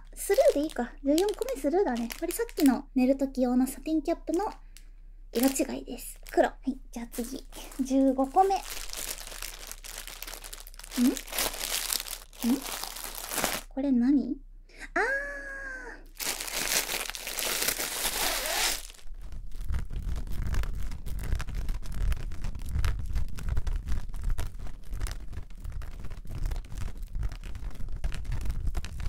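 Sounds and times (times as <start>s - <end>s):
plastic packaging crinkling: 0.0s - 2.9s, 5.4s - 13.8s, 16.1s - 29.0s
fabric bag rustling: 7.0s - 13.7s, 16.2s - 22.3s.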